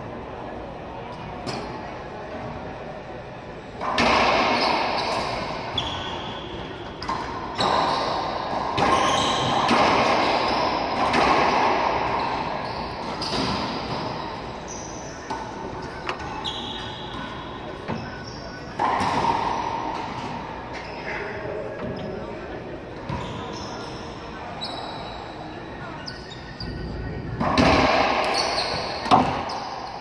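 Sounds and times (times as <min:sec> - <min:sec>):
sneaker squeaks on hardwood: 0:04.5 - 0:06.6, 0:07.5 - 0:09.7, 0:15.9 - 0:18.7, 0:23.1 - 0:25.4, 0:28.2 - 0:30.0.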